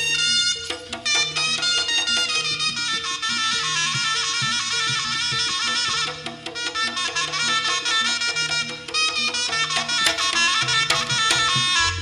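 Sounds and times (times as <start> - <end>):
gamelan notes: 0.0 - 5.8
shrill double-reed melody: 0.0 - 12.0
drum strokes: 9.6 - 12.0.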